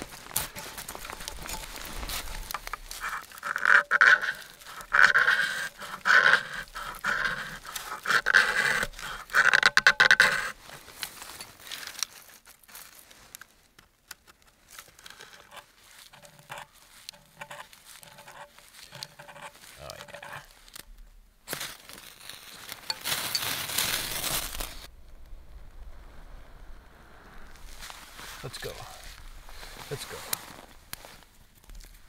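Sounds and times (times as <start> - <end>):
knife rasping on wood: 2.3 - 10.7, 15.5 - 20.5.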